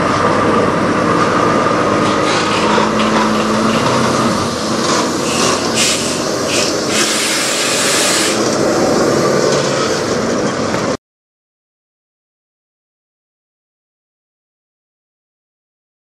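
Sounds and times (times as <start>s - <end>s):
diesel truck engine idling: 0.0s - 11.0s
air hissing: 3.4s - 8.5s.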